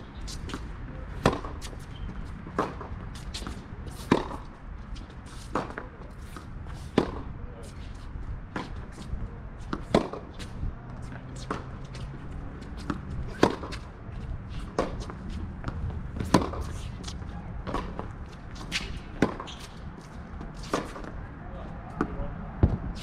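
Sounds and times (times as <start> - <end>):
tennis ball bouncing: 0.3 - 1.8, 2.4 - 4.5, 5.3 - 7.3, 9.7 - 10.5, 11.4 - 13.9, 14.6 - 21.2
tennis ball hitting racket: 0.3 - 1.8, 2.5 - 4.5, 5.3 - 7.3, 9.7 - 10.6, 11.4 - 13.9, 14.6 - 21.2.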